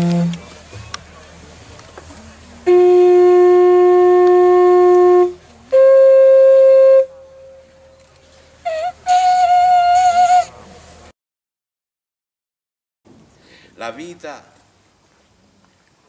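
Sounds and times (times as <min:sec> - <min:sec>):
wind instrument long notes: 0:00.0 - 0:00.5, 0:02.6 - 0:10.6.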